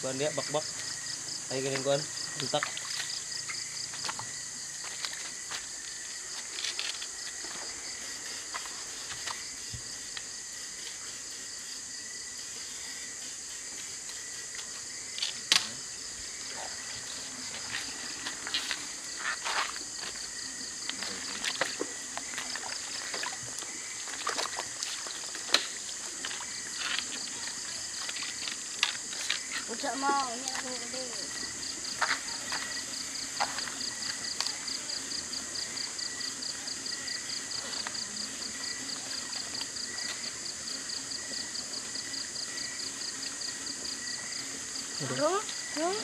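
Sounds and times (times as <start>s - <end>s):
night insects trilling: 0.0s - 46.0s
water sloshing from wading: 21.0s - 31.5s.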